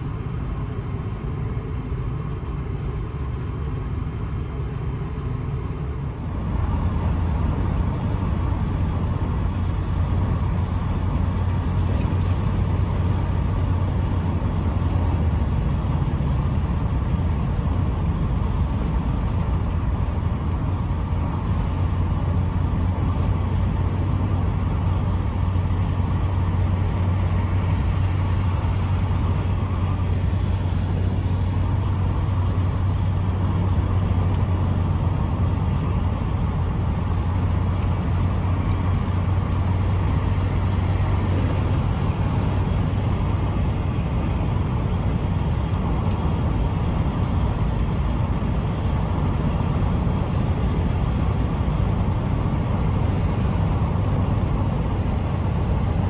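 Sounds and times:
motor vehicle rumbling: 0:00.0 - 0:56.0.

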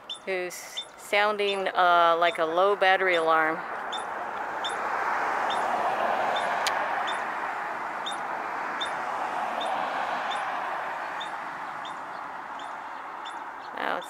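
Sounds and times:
ground squirrel alarm chirps: 0:00.0 - 0:01.7, 0:03.9 - 0:04.8, 0:05.4 - 0:05.7, 0:06.4 - 0:07.3, 0:08.0 - 0:09.0, 0:09.6 - 0:10.5, 0:11.1 - 0:14.0
steady rushing noise: 0:02.7 - 0:13.9.

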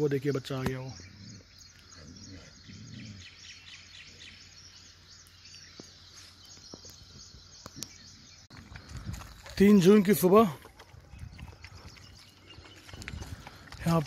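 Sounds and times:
birds twittering: 0:00.0 - 0:14.0.

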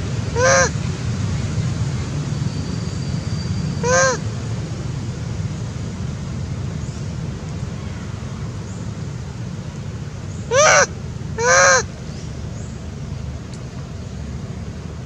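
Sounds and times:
monkey coo calls: 0:00.3 - 0:00.8, 0:03.8 - 0:04.3, 0:10.5 - 0:11.9.

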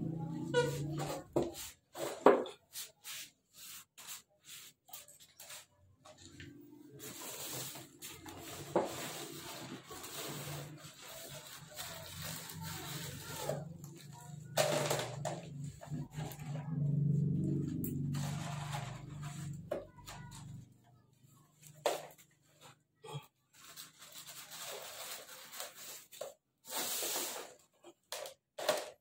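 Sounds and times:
plastic bags rustling: 0:07.0 - 0:14.8, 0:23.5 - 0:27.5.

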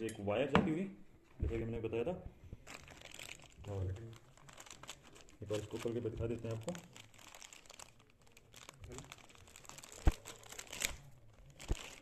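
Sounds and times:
plastic bag crinkling: 0:02.6 - 0:12.0.

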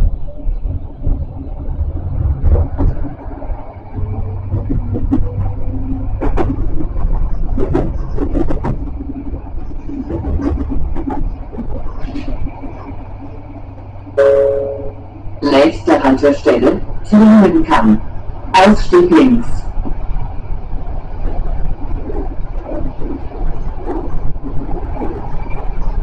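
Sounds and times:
sharp clacks and rattles: 0:00.0 - 0:14.0
tram rumbling on track: 0:00.0 - 0:26.0.

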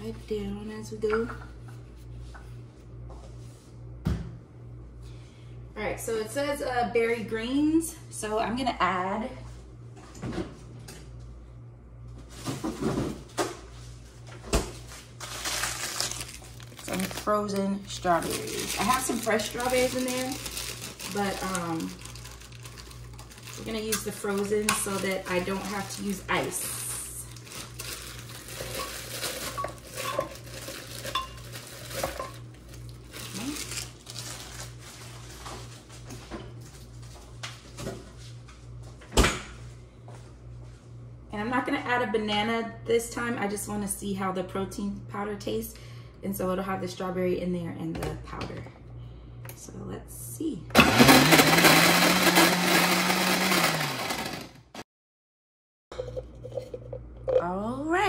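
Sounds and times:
steady low hum: 0:00.0 - 0:50.8
kitchen knocks and clunks: 0:04.0 - 0:04.4.

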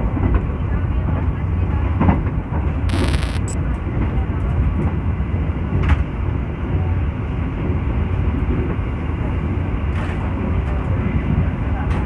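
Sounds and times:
train wheels rumbling on rails: 0:03.9 - 0:12.0.

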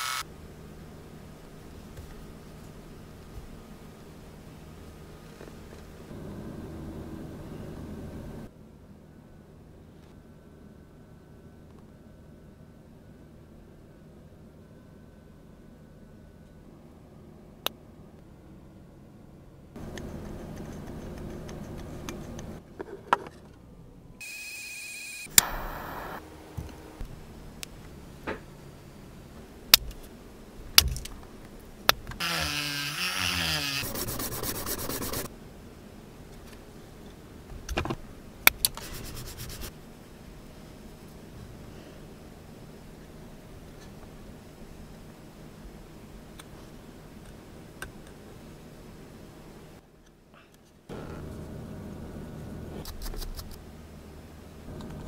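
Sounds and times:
wavering squealing rub: 0:32.2 - 0:34.0
quick rubbing strokes: 0:33.8 - 0:35.3, 0:38.7 - 0:39.7.

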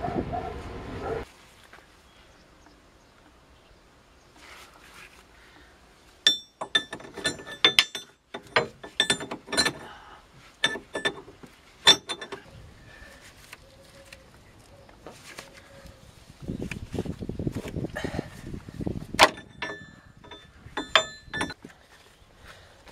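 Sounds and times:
metal tools clinking: 0:06.2 - 0:10.0, 0:10.6 - 0:12.5, 0:19.2 - 0:21.6.

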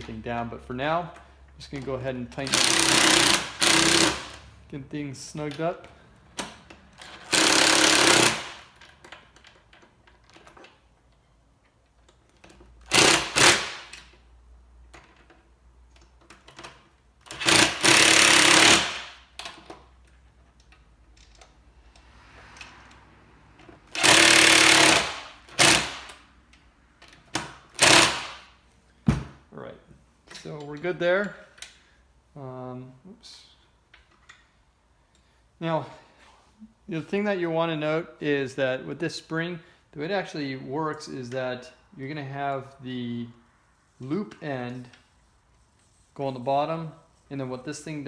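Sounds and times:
impact driver hammering bolts: 0:02.4 - 0:04.4, 0:06.4 - 0:09.4, 0:12.4 - 0:14.2, 0:16.2 - 0:19.8, 0:23.9 - 0:26.2, 0:27.0 - 0:28.5.

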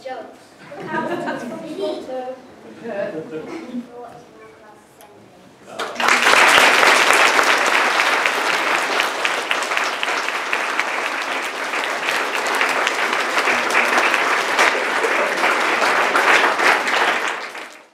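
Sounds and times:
audience applauding: 0:05.8 - 0:17.9.

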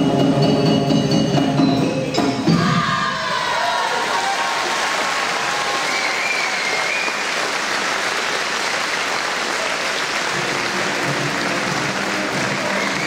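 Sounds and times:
audience applauding: 0:03.5 - 0:13.0.

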